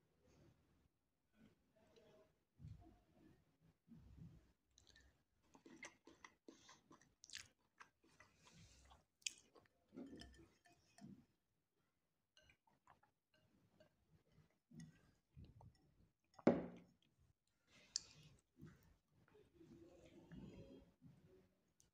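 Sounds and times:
person chewing food: 4.8s - 11.0s.

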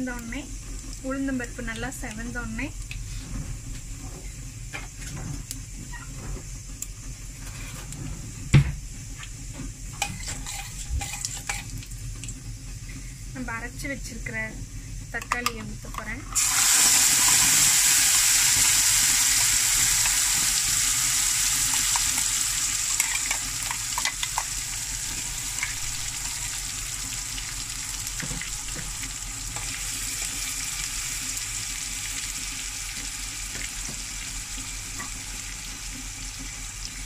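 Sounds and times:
tomato paste sizzling in oil: 9.1s - 14.3s, 16.0s - 37.0s
metal spoon scraping pan: 10.0s - 11.7s.

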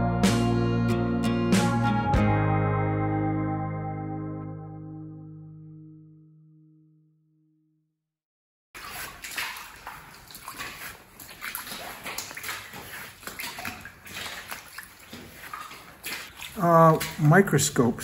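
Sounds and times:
footsteps splashing through mud: 8.8s - 18.0s.

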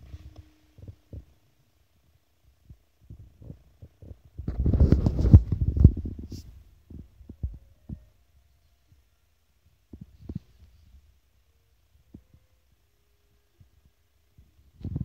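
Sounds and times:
phone microphone handling noise: 3.1s - 8.0s.

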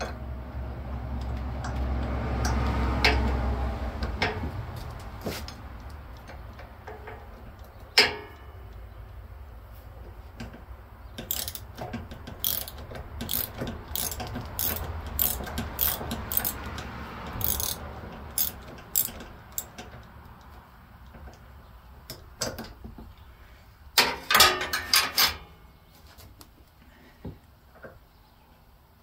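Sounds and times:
socket ratchet clicking: 11.2s - 20.5s
metallic clank: 24.0s - 25.6s.

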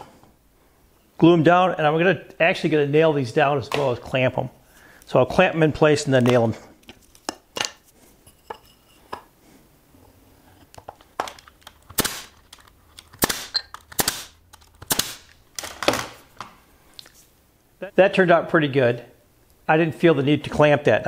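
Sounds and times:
nail gun shots: 11.9s - 12.4s, 13.1s - 16.1s.

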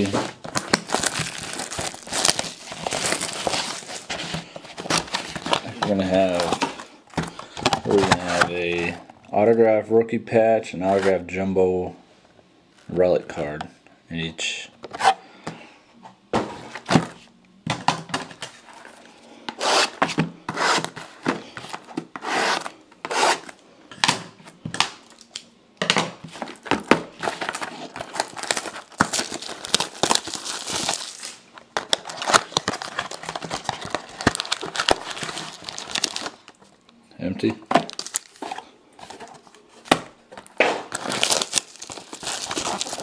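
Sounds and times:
plastic wrapping crinkling: 0.0s - 9.0s, 26.3s - 36.8s, 37.8s - 39.8s, 40.4s - 43.0s.

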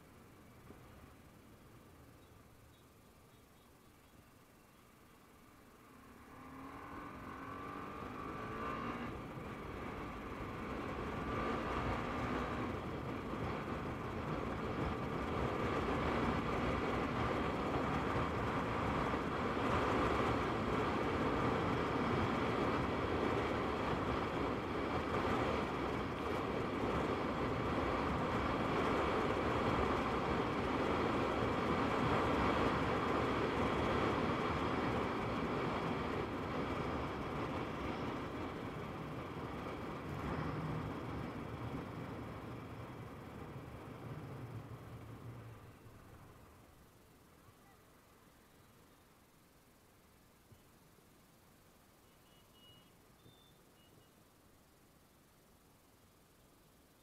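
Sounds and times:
wind and road noise: 0.0s - 57.0s
motorcycle engine accelerating: 5.7s - 46.7s.

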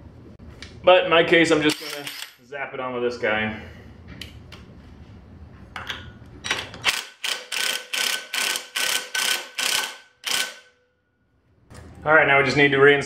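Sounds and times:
impact wrench hammering: 6.8s - 10.8s.

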